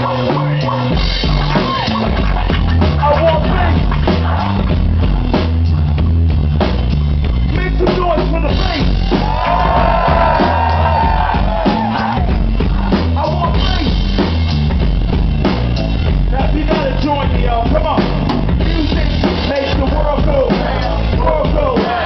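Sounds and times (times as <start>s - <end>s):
drum kit groove: 0.0s - 22.0s
electric bass guitar: 0.0s - 22.0s
person rapping into a microphone: 3.0s - 3.9s, 16.3s - 18.0s, 18.6s - 22.0s.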